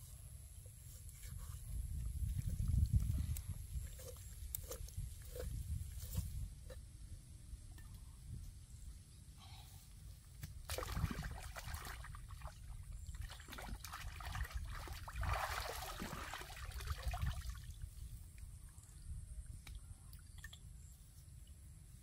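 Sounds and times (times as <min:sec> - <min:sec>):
water splashing in a stream: 0:10.6 - 0:17.8.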